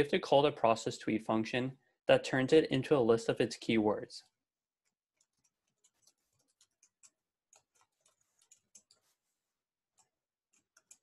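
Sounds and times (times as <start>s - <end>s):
typing on computer keyboard: 5.2s - 9.0s, 10.0s - 11.0s.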